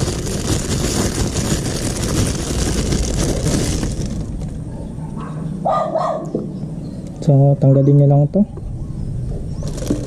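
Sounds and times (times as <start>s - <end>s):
plastic bag crinkling: 0.0s - 4.6s, 9.7s - 10.0s.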